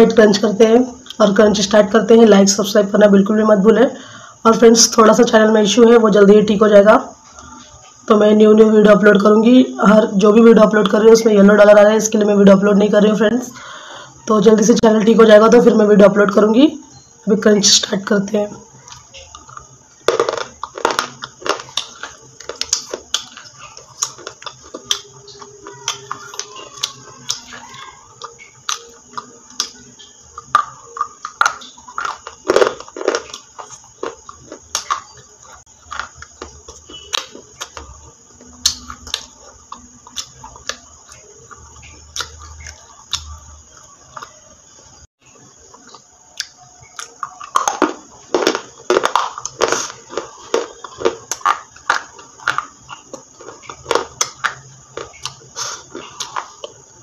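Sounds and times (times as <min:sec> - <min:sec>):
person chewing crunchy food: 0:18.7 - 0:44.8, 0:45.4 - 0:57.0.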